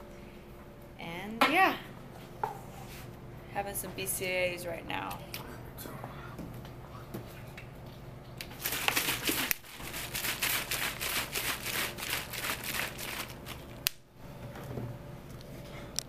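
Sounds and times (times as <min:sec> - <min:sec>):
plastic bottle crinkling: 0:08.6 - 0:13.8.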